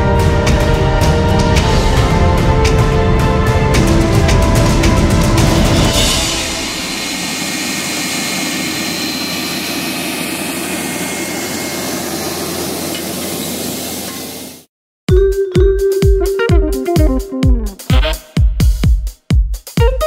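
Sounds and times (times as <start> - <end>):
tractor engine running under load: 6.6 - 14.7.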